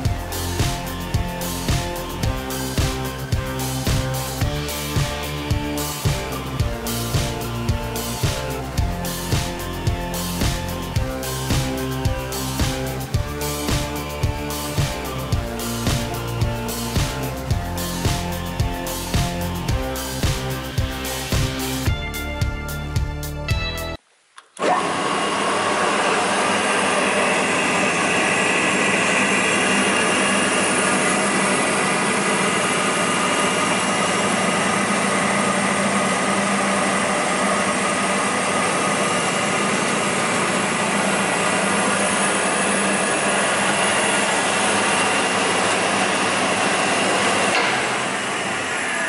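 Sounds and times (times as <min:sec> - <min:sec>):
circular saw whirring: 0:24.6 - 0:49.0.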